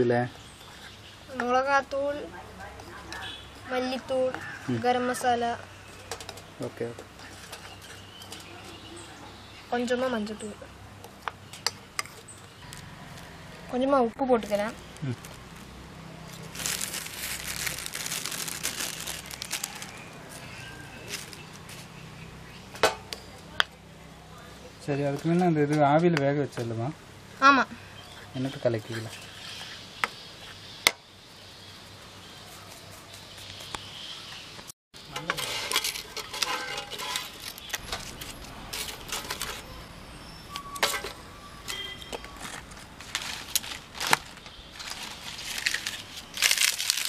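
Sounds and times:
dry sticks clattering and scraping: 5.8s - 8.9s, 35.0s - 39.8s, 40.5s - 47.0s
plastic bag crinkling: 16.3s - 20.5s, 42.6s - 47.0s.

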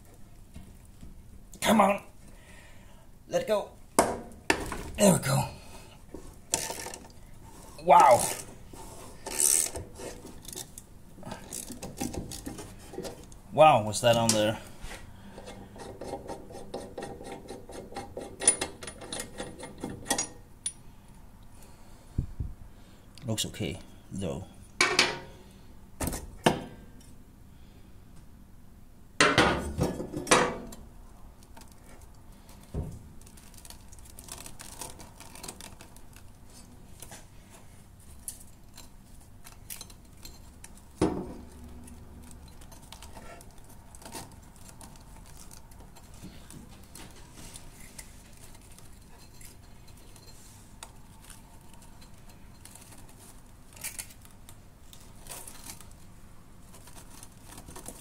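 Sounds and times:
small metal clinks and scrapes: 31.5s - 58.0s.

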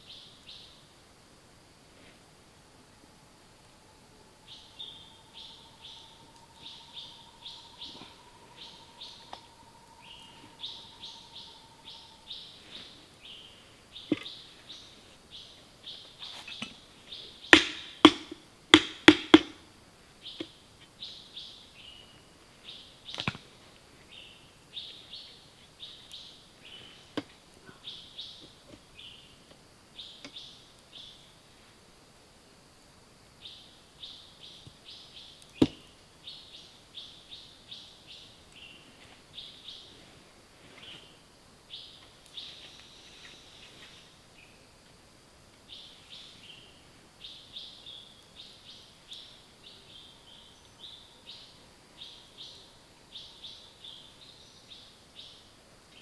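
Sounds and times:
high bird chirps: 4.5s - 14.9s.

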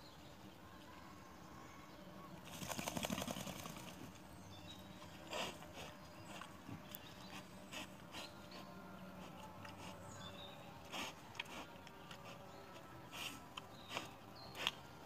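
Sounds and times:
boar rubbing against tree trunk: 5.1s - 10.2s, 10.8s - 14.8s.

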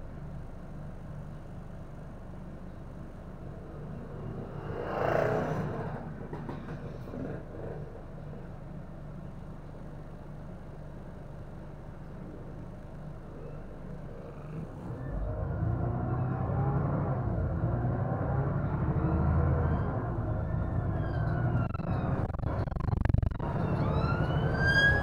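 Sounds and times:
bus diesel engine rumbling: 0.0s - 25.0s
rush of noise: 19.8s - 25.0s.

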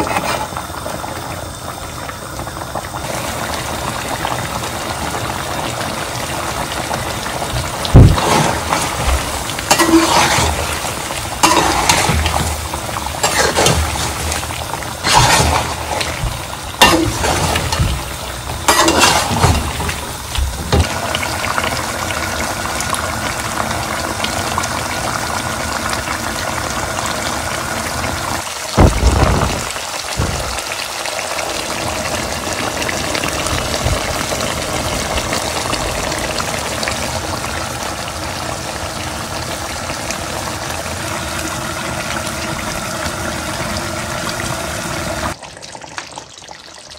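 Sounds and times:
sauce sizzling in a metal pan: 0.0s - 45.4s
spatula scraping and knocking pan: 8.0s - 10.8s, 11.4s - 12.6s, 13.2s - 20.9s.

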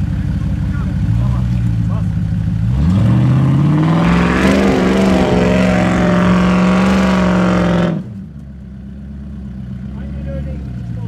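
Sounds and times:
engine revving: 0.6s - 8.3s.

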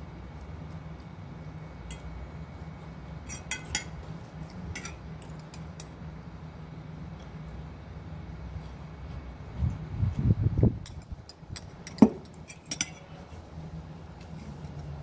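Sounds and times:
steady low hum: 0.0s - 15.0s
metal spoon clinking on dishes: 3.3s - 4.0s, 4.8s - 5.9s, 10.8s - 13.1s.

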